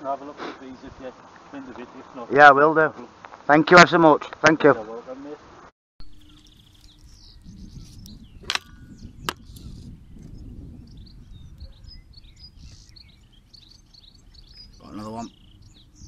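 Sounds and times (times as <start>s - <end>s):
small birds chirping: 6.0s - 16.0s
wind rumble on microphone: 6.0s - 16.0s
sharp clicks: 8.0s - 9.7s.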